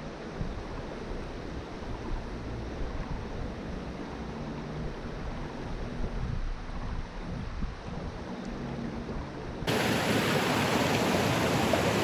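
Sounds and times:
creek water flowing: 0:09.7 - 0:12.0.

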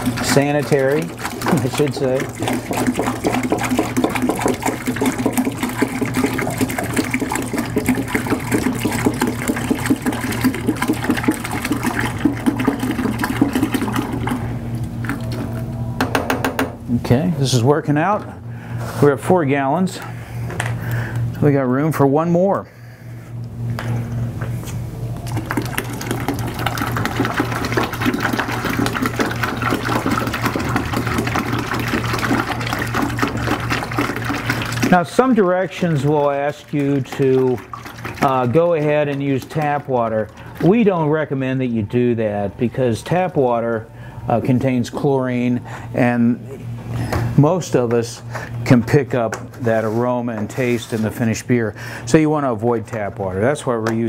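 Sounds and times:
water pouring into a pail: 0:00.0 - 0:15.6, 0:25.2 - 0:43.6
steady low hum: 0:00.0 - 0:54.0.

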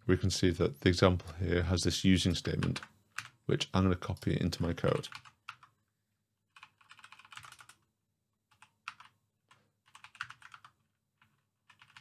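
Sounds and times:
faint keyboard typing: 0:02.3 - 0:03.4, 0:04.1 - 0:05.8, 0:06.5 - 0:12.0.

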